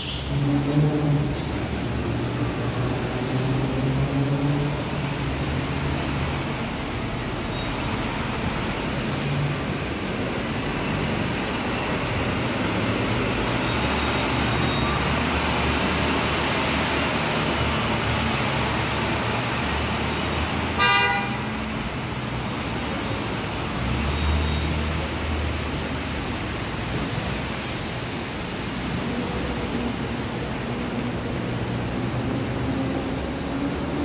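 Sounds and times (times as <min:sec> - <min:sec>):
subway train rumbling: 0:00.0 - 0:34.0
train horn toot: 0:20.8 - 0:21.5.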